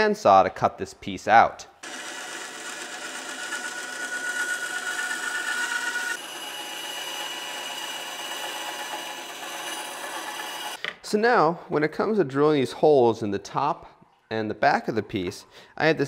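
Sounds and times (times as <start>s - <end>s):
bandsaw cutting plastic: 1.8s - 10.8s.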